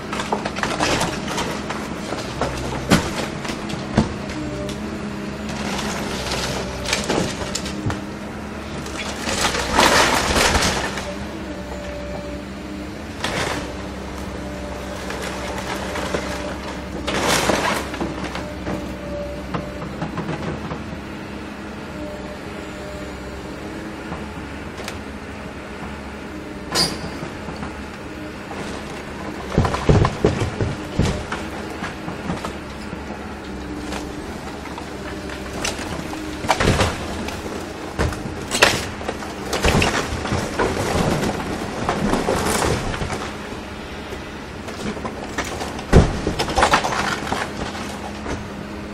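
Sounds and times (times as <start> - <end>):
wood cracking and splintering: 0.0 - 4.8, 5.4 - 12.3, 13.1 - 20.8, 26.7 - 48.7
excavator engine running: 0.0 - 48.9
crash of falling debris: 8.9 - 11.2, 35.3 - 43.4, 44.7 - 48.4
timber cracking: 28.5 - 43.6, 44.6 - 48.5
boards snapping: 35.1 - 43.3, 44.7 - 48.5.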